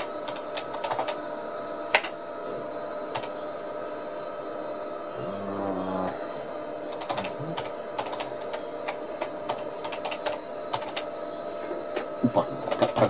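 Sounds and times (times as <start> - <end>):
keyboard typing clicks: 0.0 - 1.2, 2.0 - 2.2, 3.1 - 3.3, 6.9 - 11.1, 12.6 - 13.0
steady background hum: 0.0 - 13.0.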